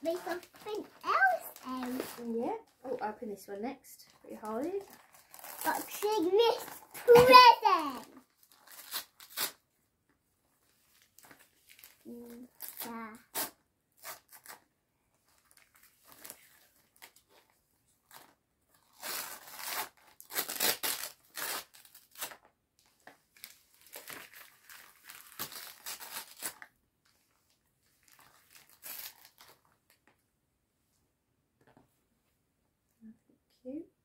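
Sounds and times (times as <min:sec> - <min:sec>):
wrapping paper tearing and crinkling: 0:00.0 - 0:03.1, 0:04.3 - 0:09.6, 0:10.9 - 0:14.6, 0:15.3 - 0:22.5, 0:23.4 - 0:26.7, 0:27.9 - 0:30.0.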